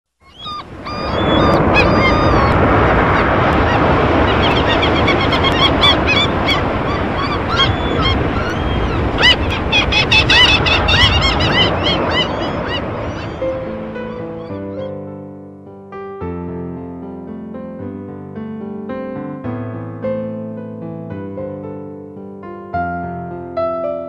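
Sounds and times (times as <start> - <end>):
flock of birds calling: 0.2 - 14.9
ocean surf: 0.2 - 15.0.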